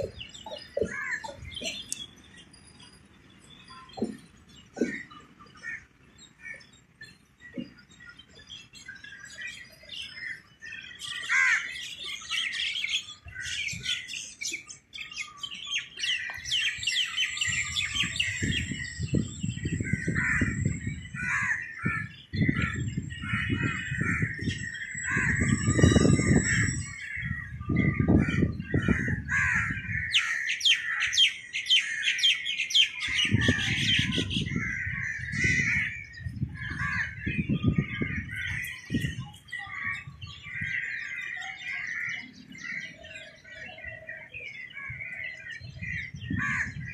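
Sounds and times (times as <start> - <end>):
birds chirping and trilling: 0.0 - 46.9.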